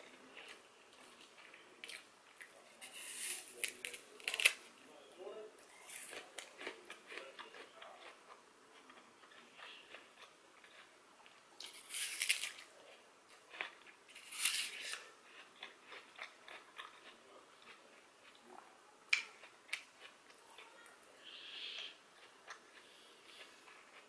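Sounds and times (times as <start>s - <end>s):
crunching apple bites: 0.1s - 4.7s, 5.6s - 20.7s.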